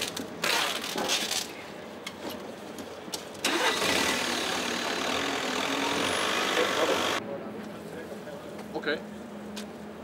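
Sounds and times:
forklift engine starting and running: 3.4s - 7.2s.

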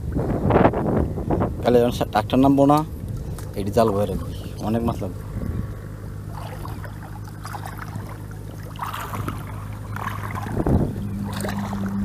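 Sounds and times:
water splashing while wading: 2.7s - 12.0s.

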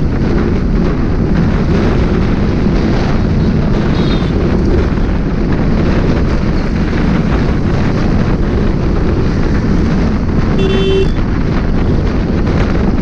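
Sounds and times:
motorbike engine rumble: 0.0s - 13.0s
road traffic: 0.0s - 13.0s
wind noise on microphone: 0.0s - 13.0s
vehicle horn beep: 10.6s - 11.2s.

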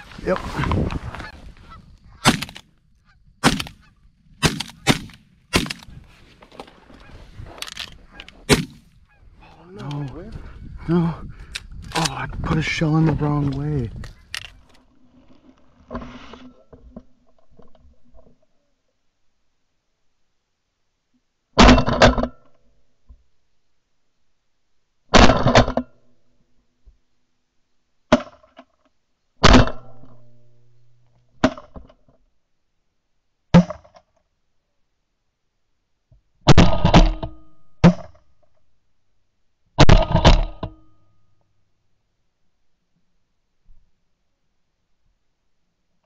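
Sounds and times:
shotgun blasts: 2.2s - 2.6s, 3.4s - 3.8s, 4.4s - 5.9s, 8.4s - 8.9s.

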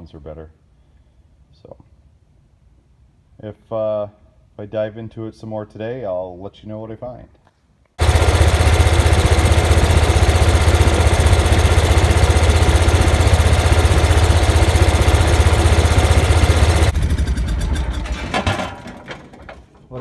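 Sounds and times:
welder engine running: 8.0s - 18.8s.

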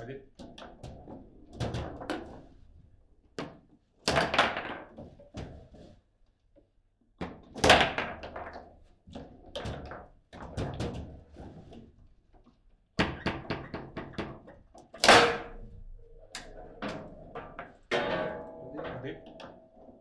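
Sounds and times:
foosball figures clacking ball: 3.4s - 5.6s, 7.2s - 11.2s.

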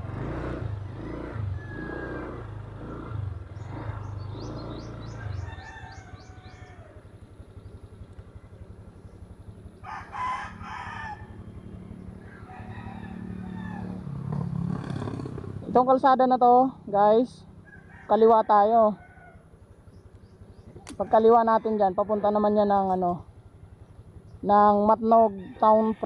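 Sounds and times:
motorcycle engine idling: 0.0s - 26.0s
rooster crowing: 5.1s - 7.1s, 9.8s - 11.6s, 12.2s - 14.2s, 17.6s - 19.5s, 21.1s - 22.7s, 25.3s - 26.0s.

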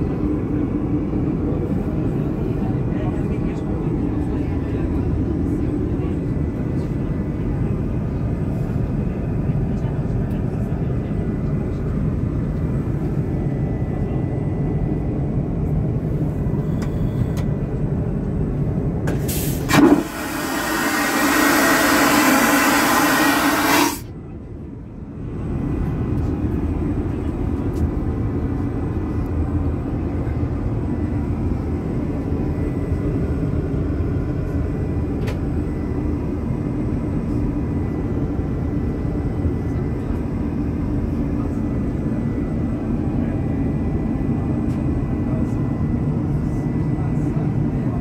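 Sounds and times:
airliner cabin drone: 0.0s - 48.0s
vacuum toilet flushing: 19.3s - 24.0s
toilet valve bang: 19.7s - 24.0s.

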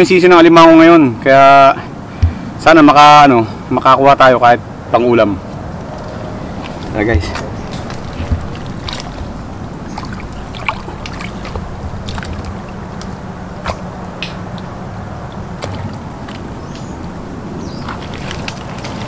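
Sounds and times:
muddy water sloshing: 2.1s - 2.7s, 5.4s - 19.0s.

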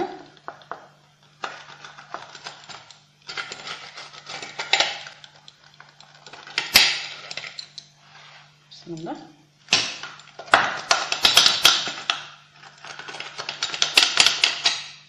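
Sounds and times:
pizza cutter crunching crust: 1.3s - 7.4s, 9.7s - 15.0s.

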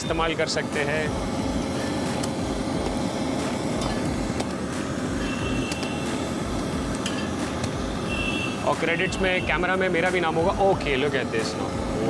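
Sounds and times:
metal spatula clicking on griddle: 6.9s - 7.8s.

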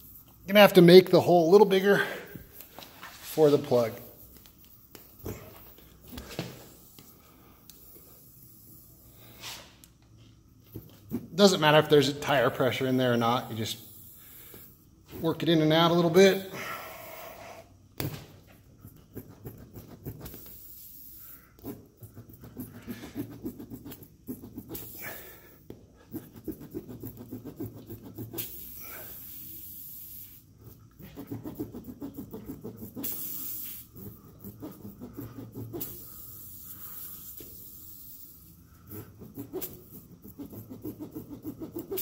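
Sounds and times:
short hissy bursts: 6.6s - 9.8s, 13.4s - 14.8s, 20.4s - 21.4s, 28.4s - 30.5s, 33.0s - 33.9s, 35.7s - 38.7s
rubber scraping against rasp: 21.6s - 25.4s, 30.7s - 36.2s, 38.8s - 42.0s.

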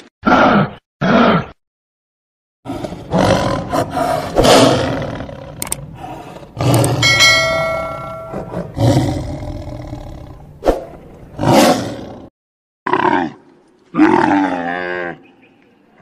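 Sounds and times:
lions growling and snarling: 2.7s - 12.3s
bell chime: 7.0s - 8.7s.

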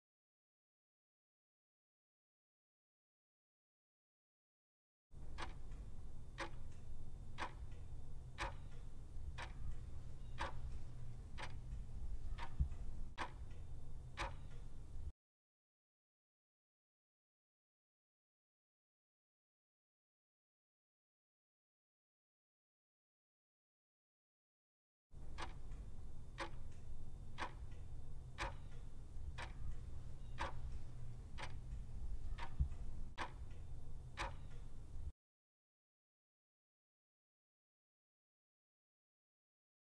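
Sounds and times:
clock ticking: 5.2s - 15.1s, 25.2s - 35.1s
low steady hum: 5.2s - 15.1s, 25.2s - 35.1s.

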